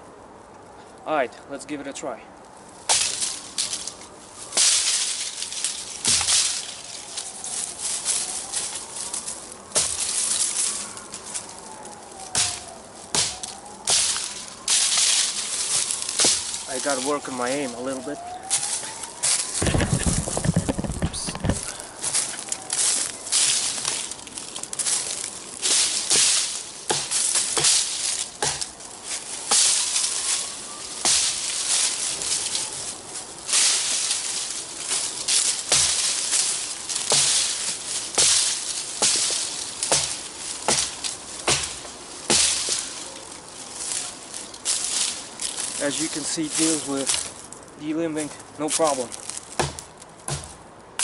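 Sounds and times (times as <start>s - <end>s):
dry leaves and twigs rustling: 2.0s - 51.0s
knife chopping branches: 2.8s - 47.4s, 48.1s - 51.0s
blade chopping wood: 4.6s - 6.7s, 9.7s - 10.2s, 12.3s - 17.1s, 25.6s - 28.7s, 29.4s - 30.1s, 31.0s - 32.4s, 34.9s - 43.0s, 49.5s - 51.0s.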